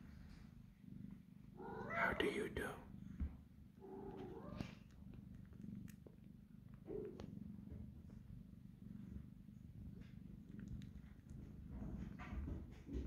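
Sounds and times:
cat purring: 0.0 - 13.0
faint clicks: 10.0 - 11.4.

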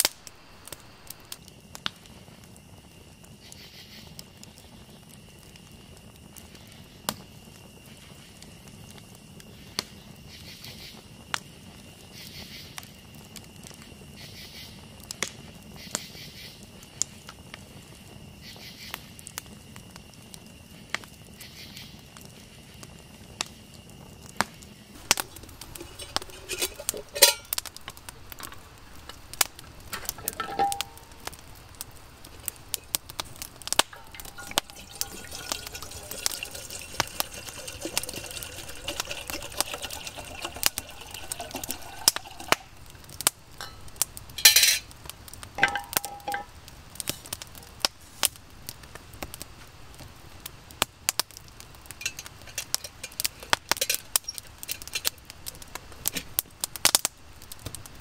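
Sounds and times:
campfire crackling: 0.0 - 58.0
metal cookware clinking: 25.0 - 27.6, 29.9 - 31.4, 32.4 - 42.8, 43.6 - 44.8, 45.6 - 46.5, 52.0 - 55.2
liquid pouring: 25.0 - 44.0, 45.6 - 46.5, 52.0 - 55.2.

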